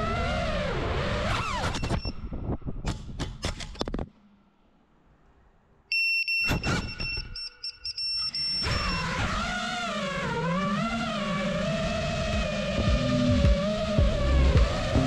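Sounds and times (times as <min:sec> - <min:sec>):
shrill buzzer beeps: 0:05.9 - 0:09.1
music with wavering melody: 0:09.7 - 0:15.0.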